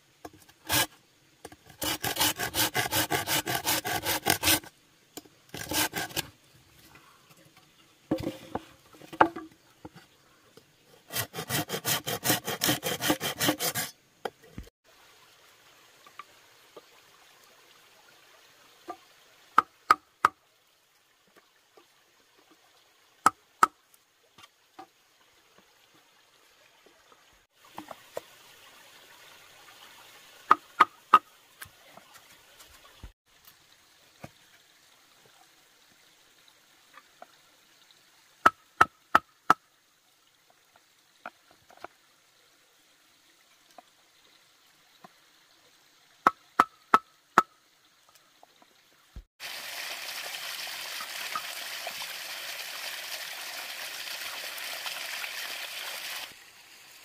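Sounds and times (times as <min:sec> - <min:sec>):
hand tool rasping wood: 0:00.7 - 0:00.9, 0:01.7 - 0:04.7, 0:05.5 - 0:06.3, 0:11.0 - 0:14.0.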